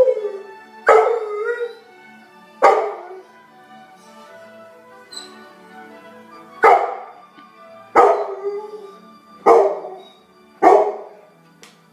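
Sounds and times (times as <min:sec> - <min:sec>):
television music: 0:00.0 - 0:11.9
dog barking: 0:00.9 - 0:01.2, 0:02.6 - 0:03.1, 0:06.6 - 0:07.2, 0:08.0 - 0:08.4, 0:09.4 - 0:10.0, 0:10.6 - 0:11.2.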